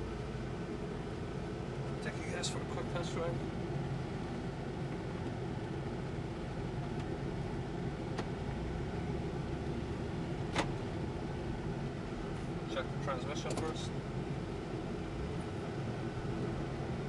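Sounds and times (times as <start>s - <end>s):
truck engine running: 0.0s - 17.0s.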